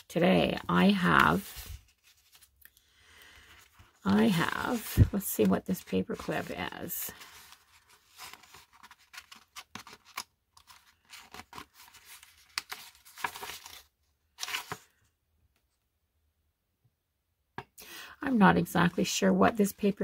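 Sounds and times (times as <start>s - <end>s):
paper rustling and crinkling: 0.0s - 15.0s.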